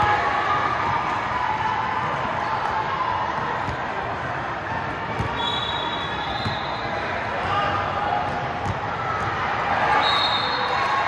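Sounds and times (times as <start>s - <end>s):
voices echoing in a gym: 0.0s - 11.0s
basketball bouncing: 5.1s - 5.4s, 8.2s - 9.4s.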